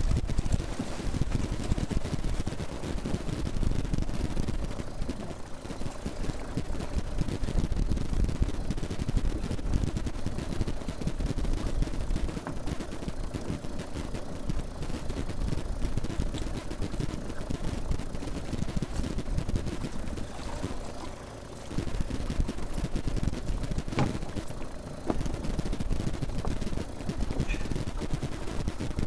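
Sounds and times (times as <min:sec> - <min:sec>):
wind buffeting microphone: 0:00.0 - 0:21.1, 0:21.7 - 0:29.0
waves against a boat: 0:16.2 - 0:29.0.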